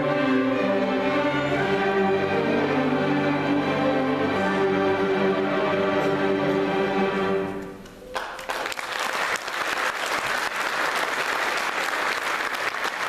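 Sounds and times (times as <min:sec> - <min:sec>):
string orchestra chord: 0:00.0 - 0:07.8
audience applause: 0:08.1 - 0:13.0.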